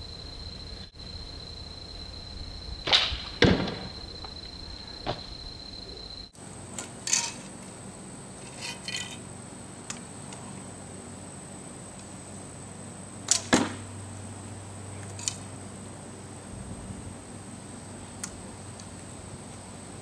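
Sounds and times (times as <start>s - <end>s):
arrow thudding into target: 2.8s - 4.0s, 13.3s - 13.9s
arrow clicking and rattling: 13.3s - 13.7s, 15.0s - 15.5s.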